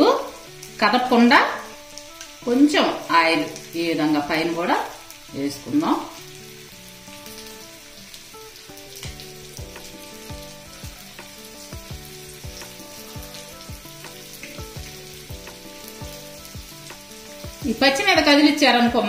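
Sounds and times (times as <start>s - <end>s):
fish sizzling in oil: 0.0s - 19.0s
background music with beat: 8.9s - 17.8s.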